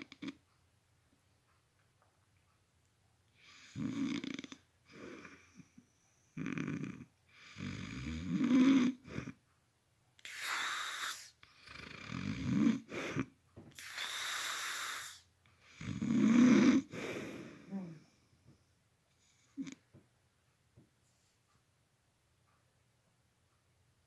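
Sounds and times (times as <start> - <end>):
man snoring loudly: 3.6 - 4.6, 6.4 - 9.0, 10.5 - 12.9, 15.8 - 16.9
breathy hissing exhales: 10.2 - 11.4, 13.8 - 15.2.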